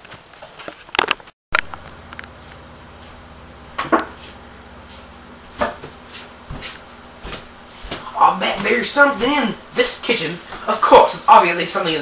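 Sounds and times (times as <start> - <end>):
steady low hum: 1.5 - 12.0
knocks and thuds: 3.0 - 9.4.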